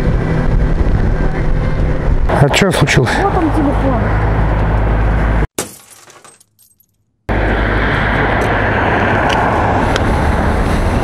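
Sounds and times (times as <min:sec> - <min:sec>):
wind noise: 0:00.0 - 0:02.6.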